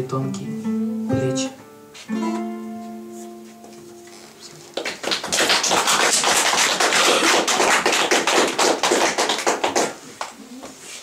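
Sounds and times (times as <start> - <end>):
audience applauding: 4.7 - 10.3.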